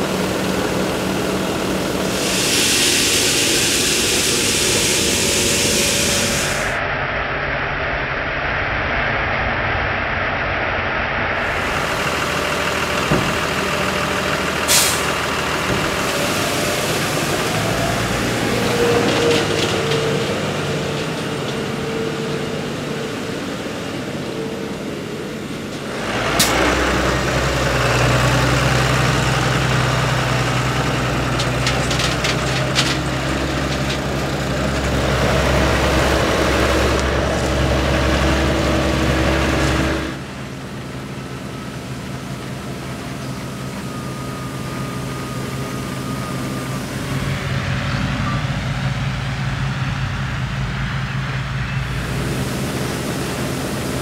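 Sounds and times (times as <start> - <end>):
elevator machinery running: 0.0 - 6.8, 11.4 - 54.0
tractor engine running: 0.0 - 6.8, 11.4 - 54.0
grain pouring onto a pile: 2.1 - 6.5.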